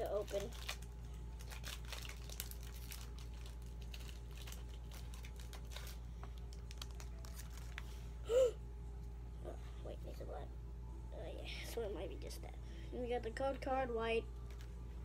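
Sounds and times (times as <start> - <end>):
foil wrapper and cards rustling: 0.0 - 8.1, 14.4 - 15.0.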